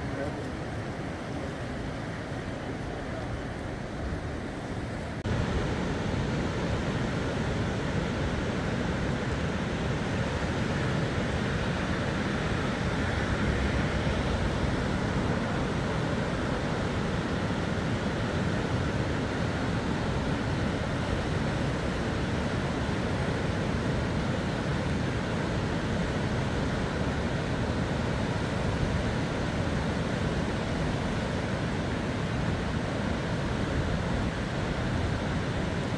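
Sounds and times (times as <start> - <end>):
floodwater rushing through weir: 0.0 - 35.9.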